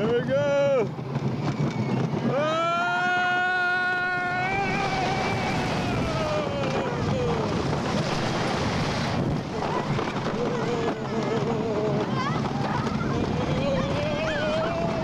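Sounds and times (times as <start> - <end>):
roller coaster rumbling on track: 0.0 - 15.0
wind noise: 1.0 - 15.0
person screaming: 2.4 - 7.5.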